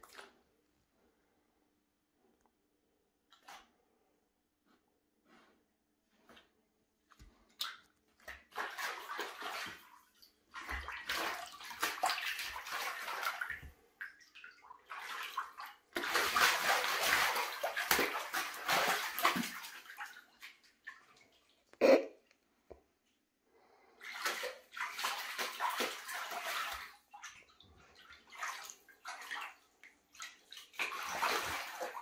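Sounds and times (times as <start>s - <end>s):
water splashing and sloshing: 0.0s - 0.5s, 3.2s - 4.0s, 5.3s - 21.8s, 22.8s - 32.0s
paw smacking water: 7.5s - 21.6s, 24.0s - 32.0s.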